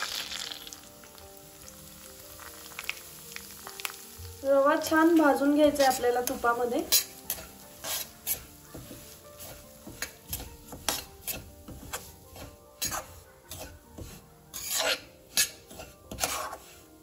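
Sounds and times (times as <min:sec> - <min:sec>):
light sizzle: 0:00.0 - 0:17.0
metal spatula scraping a pan: 0:05.7 - 0:17.0.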